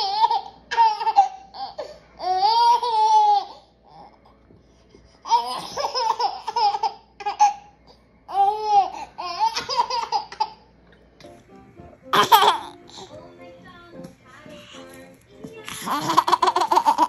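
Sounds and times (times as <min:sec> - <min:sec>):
music: 0:10.8 - 0:16.5
baby laughing and squealing: 0:12.1 - 0:12.8, 0:15.8 - 0:17.0.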